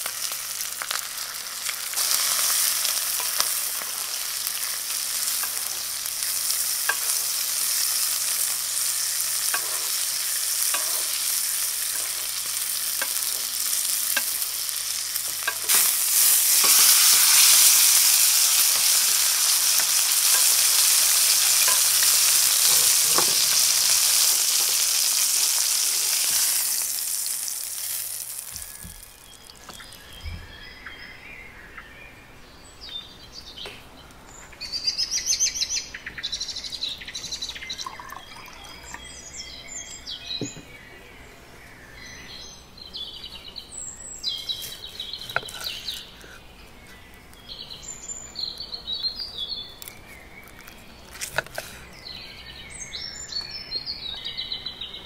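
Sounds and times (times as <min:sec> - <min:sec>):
steak sizzling in butter: 0:00.0 - 0:30.0, 0:44.2 - 0:48.4, 0:49.8 - 0:51.8.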